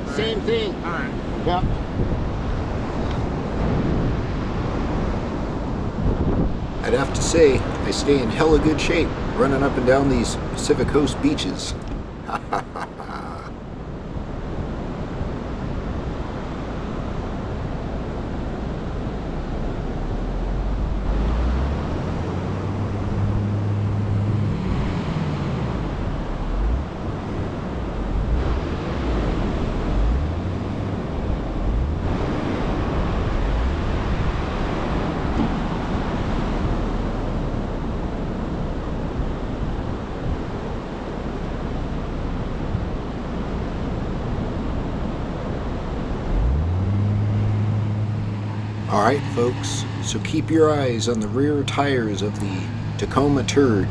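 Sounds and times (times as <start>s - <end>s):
wind on microphone: 0.0s - 6.8s
ocean surf: 0.0s - 53.9s
vehicle engine at low revs: 14.0s - 53.9s.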